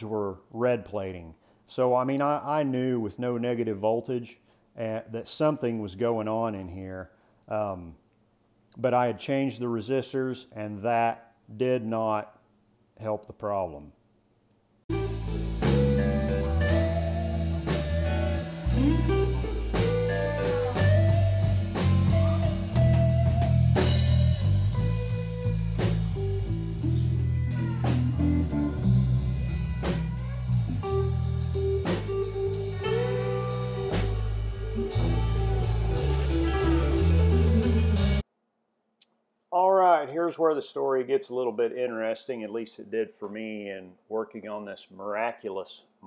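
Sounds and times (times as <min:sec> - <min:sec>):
bass notes: 0:14.9 - 0:38.2
drum kit beat: 0:14.9 - 0:38.2
electric guitars: 0:14.9 - 0:38.2.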